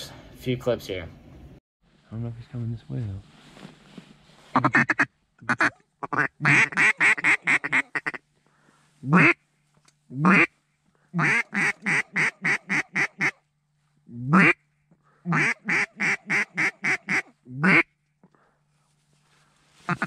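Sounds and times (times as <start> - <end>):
duck call quacking: 4.5 - 8.2, 9.0 - 9.4, 10.1 - 10.5, 11.2 - 13.4, 14.2 - 14.6, 15.3 - 17.9.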